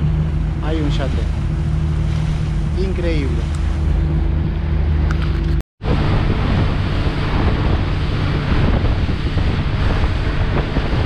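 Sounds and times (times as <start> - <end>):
motorboat engine drone: 0.0 - 11.0
water rushing past hull: 0.0 - 11.0
wind buffeting microphone: 0.0 - 11.0.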